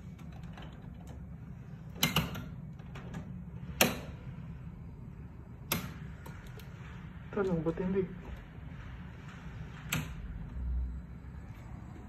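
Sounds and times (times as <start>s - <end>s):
air conditioner switch clicks: 1.9s - 4.2s, 5.6s - 6.7s.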